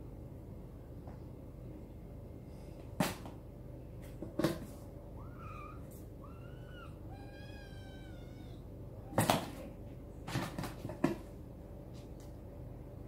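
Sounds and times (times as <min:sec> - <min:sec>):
kittens mewing: 0:05.1 - 0:09.6.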